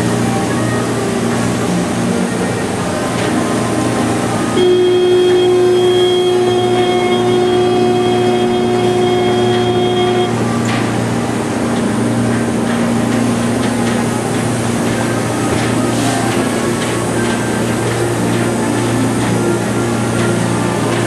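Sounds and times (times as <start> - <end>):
boat engine hum: 0.0 - 21.0
long steady horn note: 4.4 - 12.3.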